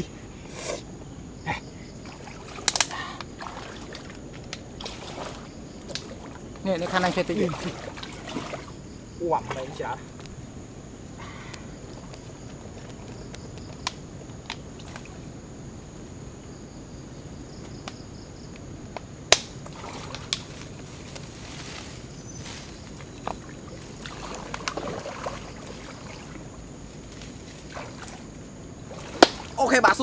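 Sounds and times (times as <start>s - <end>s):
floodwater sloshing and splashing: 1.8s - 10.2s, 14.6s - 15.3s, 19.6s - 30.0s
leaves rustling: 1.9s - 16.1s, 18.6s - 30.0s.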